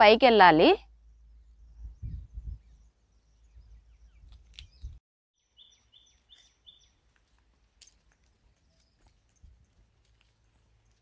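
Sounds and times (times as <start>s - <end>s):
bird chirping: 1.0s - 7.1s
low rumbling on microphone: 1.1s - 5.0s.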